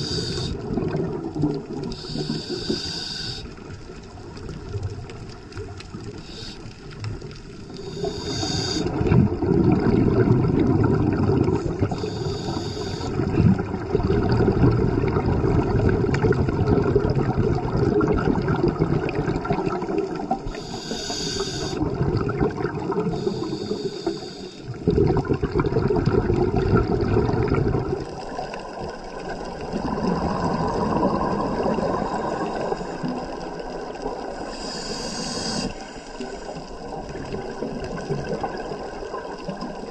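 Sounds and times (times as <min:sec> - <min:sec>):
hissing regulator inhales: 0:00.0 - 0:00.6, 0:01.9 - 0:03.6, 0:06.2 - 0:06.8, 0:07.7 - 0:09.0, 0:11.9 - 0:13.2, 0:20.5 - 0:21.8, 0:23.1 - 0:24.8, 0:34.5 - 0:36.6
exhaled bubbles underwater: 0:00.0 - 0:39.9.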